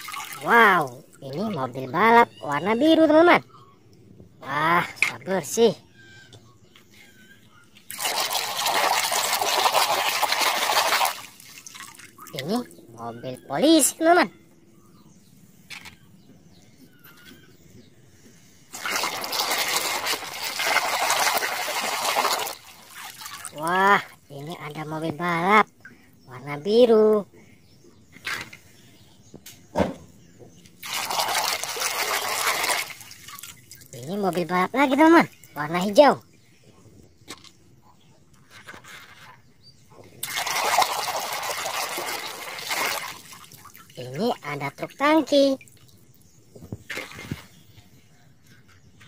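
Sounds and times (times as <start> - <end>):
hand sloshing through water: 0.0 - 0.8, 7.9 - 12.6, 18.7 - 23.8, 30.8 - 33.9, 40.2 - 44.0.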